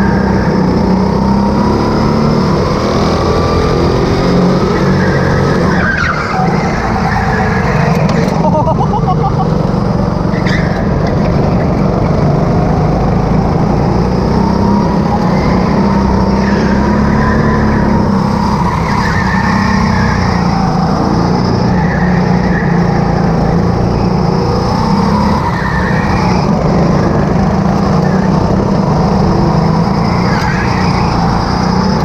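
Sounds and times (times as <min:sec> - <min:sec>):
go-kart engine revving: 0:00.0 - 0:32.0
other karts running nearby: 0:00.0 - 0:32.0
tyre squeals: 0:04.7 - 0:08.6, 0:10.3 - 0:11.2, 0:14.9 - 0:23.2, 0:25.1 - 0:26.8, 0:29.8 - 0:32.0.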